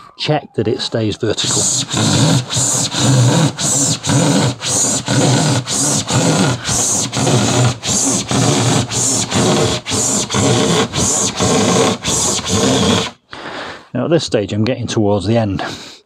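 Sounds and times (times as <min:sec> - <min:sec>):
handsaw cutting board: 0:01.3 - 0:13.2.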